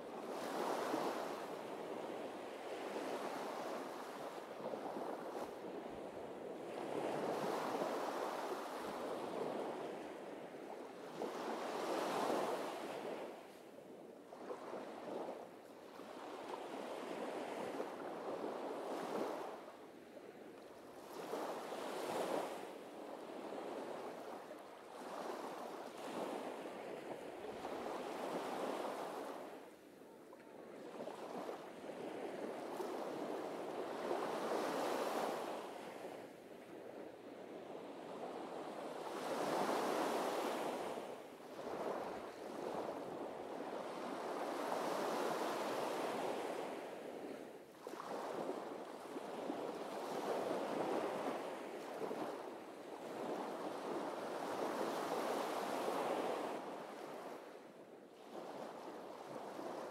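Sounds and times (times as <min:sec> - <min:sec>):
small waves breaking on beach: 0:00.0 - 0:59.9.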